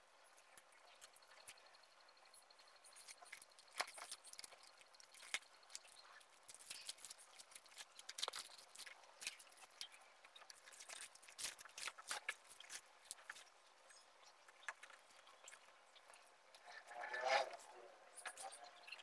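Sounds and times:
plastic packaging crackling: 3.0 - 13.5.

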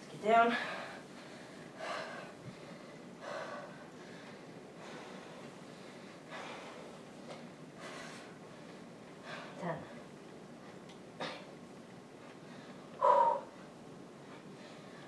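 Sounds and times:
woman breathing hard: 0.4 - 10.1, 12.4 - 13.7, 14.3 - 15.0.

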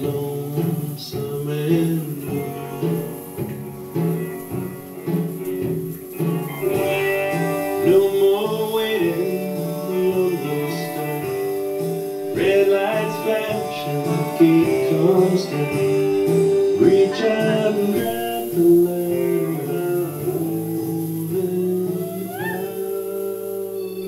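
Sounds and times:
band music with plucked guitars: 0.0 - 24.0.

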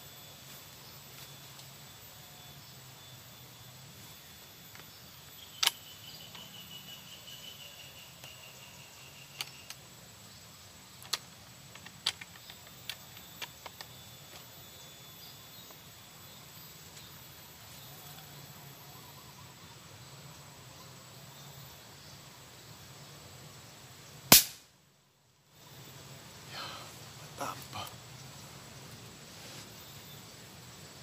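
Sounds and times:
high insect drone: 0.0 - 31.0
sharp clicks: 5.6 - 5.8.

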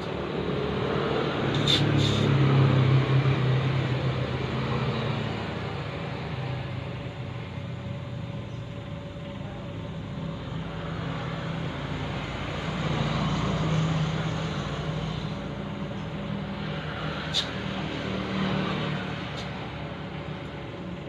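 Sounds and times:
low mechanical drone: 0.0 - 21.0
air hissing into tyre: 1.5 - 2.4, 17.0 - 17.8.

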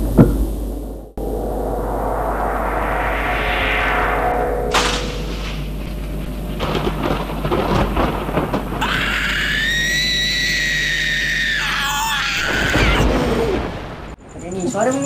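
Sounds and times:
rumbling horror soundtrack: 0.0 - 14.7
shrill ghostly shriek: 1.2 - 6.0, 8.8 - 13.8.

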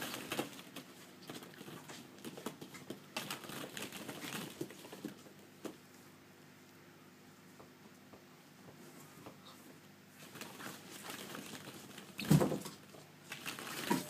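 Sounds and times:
plastic balls clacking and rustling: 0.0 - 5.8, 10.2 - 14.0.

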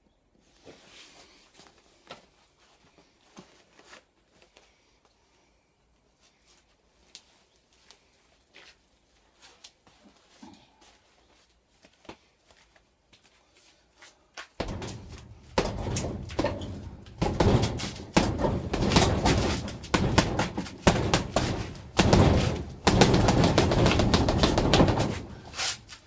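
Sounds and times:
gloves punching heavy bag: 14.6 - 26.0.

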